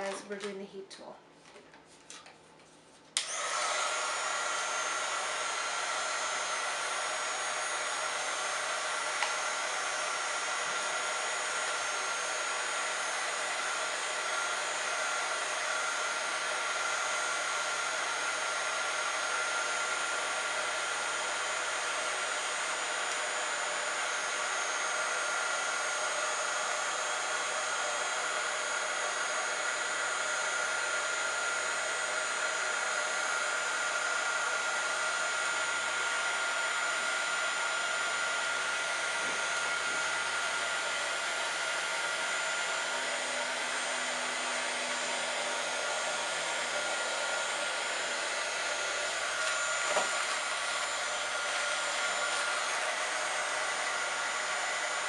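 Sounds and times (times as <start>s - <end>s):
fan whine: 1.4s - 19.0s, 36.6s - 55.0s
heat tool air rushing: 36.8s - 55.0s.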